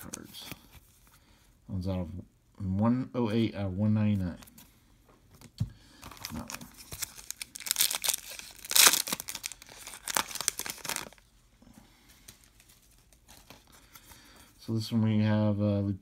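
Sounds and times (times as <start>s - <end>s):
foil wrapper tearing and crinkling: 6.1s - 11.2s.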